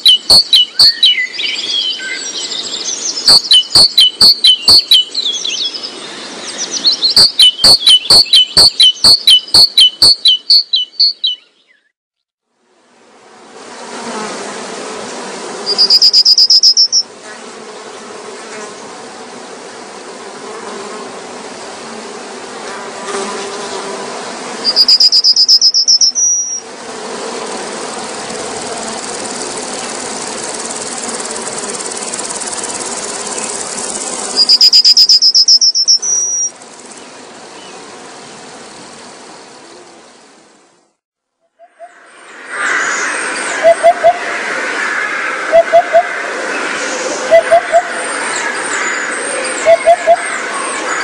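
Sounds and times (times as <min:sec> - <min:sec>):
high fast trilling call: 0:00.0 - 0:02.0, 0:03.2 - 0:05.7, 0:06.6 - 0:11.4, 0:15.7 - 0:17.0, 0:24.7 - 0:26.6, 0:34.4 - 0:36.5, 0:47.2 - 0:51.0
outdoor ambience hiss: 0:00.0 - 0:11.7, 0:12.4 - 0:41.0, 0:41.9 - 0:51.0.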